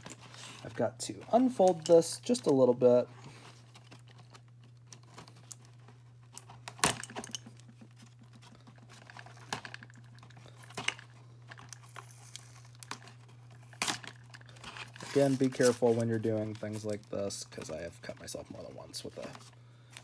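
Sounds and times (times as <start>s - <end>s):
steady low hum: 0.0s - 20.0s
cardboard rustling and scraping: 10.5s - 17.0s.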